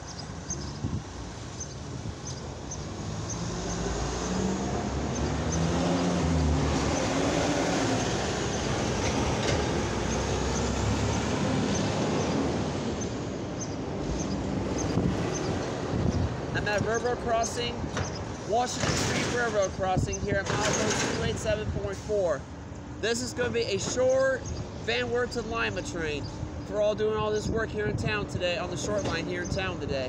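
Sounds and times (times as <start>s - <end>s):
cars driving past: 0.1s - 17.0s
truck diesel engine passing: 2.8s - 15.9s.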